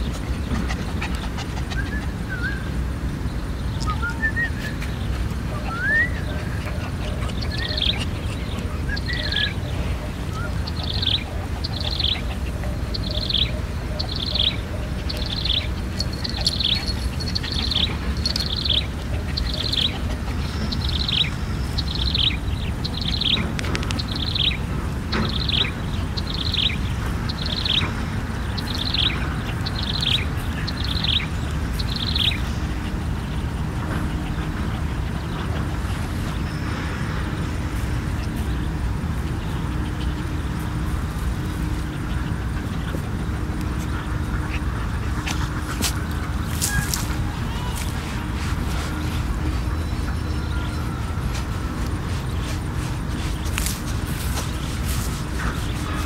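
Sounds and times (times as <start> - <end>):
steady low rumble: 0.0 - 56.0.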